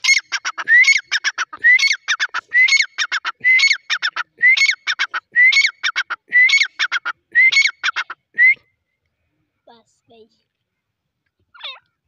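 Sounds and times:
francolin calling loudly: 0.0s - 8.2s.

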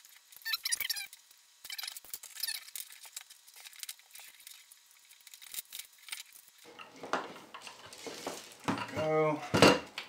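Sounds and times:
plastic squeak: 0.4s - 2.8s.

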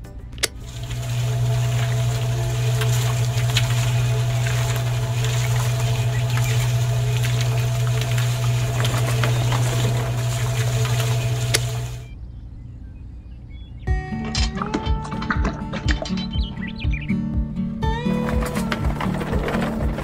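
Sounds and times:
small electric motor humming: 0.5s - 12.1s
clicks and rattles of mixer drum: 18.2s - 20.0s.

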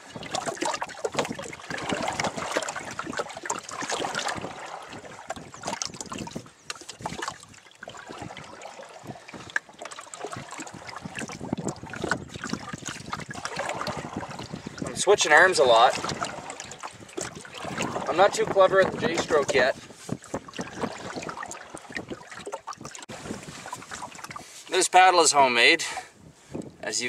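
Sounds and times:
water splashing around canoe: 0.0s - 26.6s
wind on microphone: 0.0s - 27.0s.

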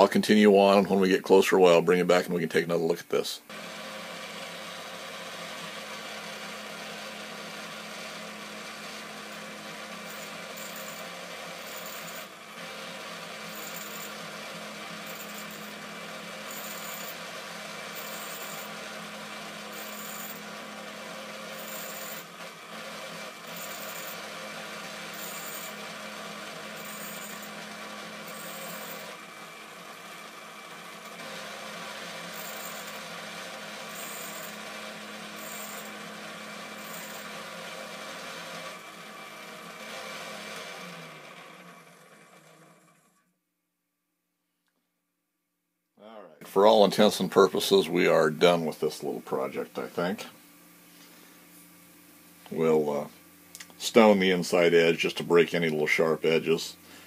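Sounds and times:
grinding wheel hiss: 3.5s - 40.9s
grinder motor running: 3.5s - 43.3s, 52.3s - 57.0s.

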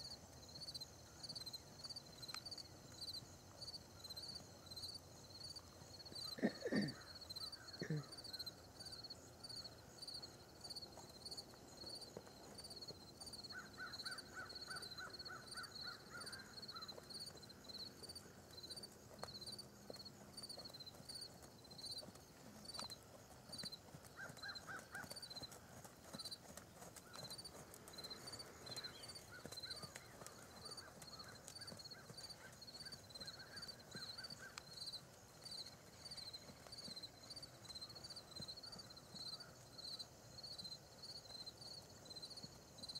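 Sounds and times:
insect chirping: 0.0s - 42.9s
bird calling in rapid runs: 22.8s - 34.6s.

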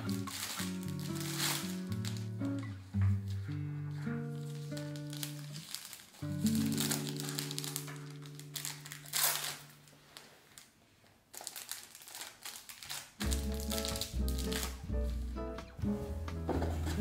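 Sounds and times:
plastic sleeve crinkling: 0.0s - 15.6s
background music chord: 13.3s - 17.0s.

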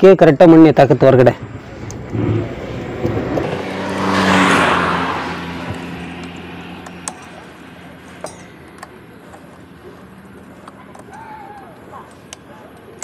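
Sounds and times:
motor vehicle passing: 1.3s - 13.0s.

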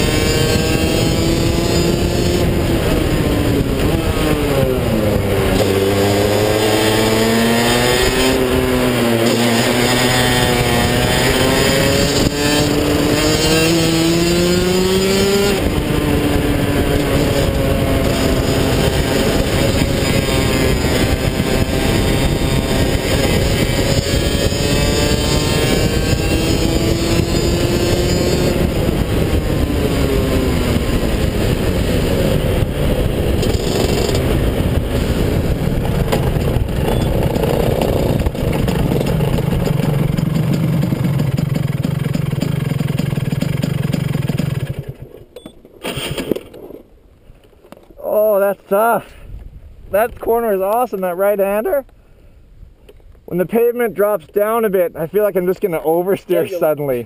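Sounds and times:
wind noise: 0.0s - 42.3s, 44.4s - 57.0s
kart engine revving: 0.0s - 45.2s.

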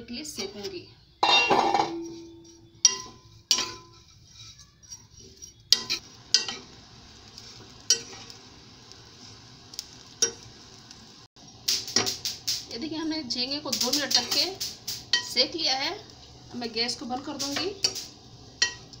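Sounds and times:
faint sizzling hiss: 0.0s - 19.0s
spatula scraping a pan: 0.4s - 9.5s.

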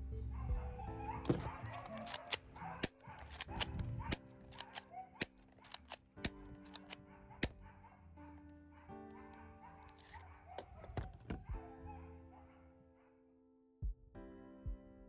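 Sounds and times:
background music: 0.0s - 13.3s
plastic pistol slide clicks: 1.2s - 7.6s, 9.9s - 11.4s.

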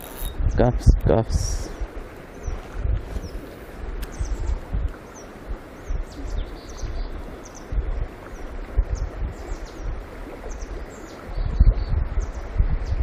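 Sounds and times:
wind buffeting microphone: 0.0s - 13.0s
stream rushing: 1.1s - 13.0s
small birds chirping: 3.2s - 3.4s, 4.0s - 13.0s.

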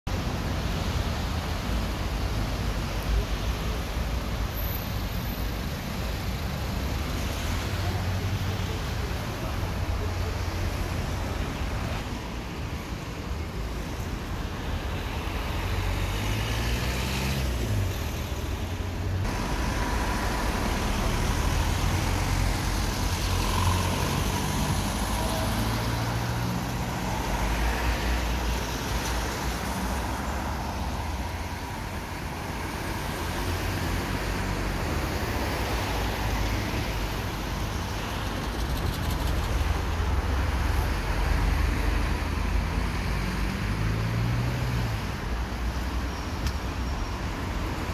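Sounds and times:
cars passing: 0.1s - 47.9s
tyre noise on wet road: 0.1s - 47.9s.

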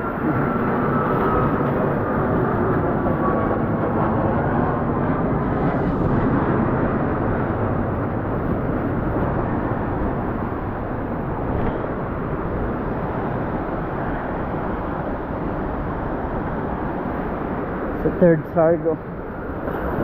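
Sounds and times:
big waves surging among rocks: 0.0s - 20.0s.

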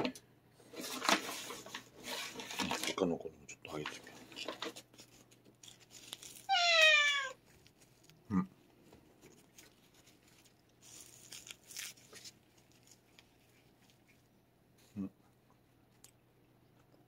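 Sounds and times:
cat meowing: 6.5s - 7.4s.

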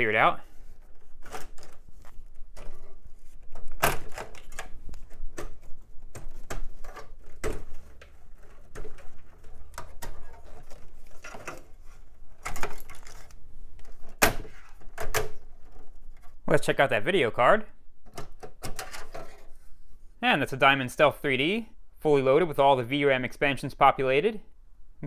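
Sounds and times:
rustling: 0.0s - 16.4s.

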